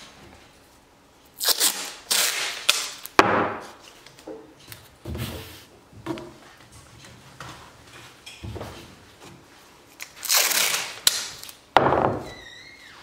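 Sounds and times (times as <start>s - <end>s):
masking tape ripping: 1.3s - 3.2s, 10.0s - 11.6s.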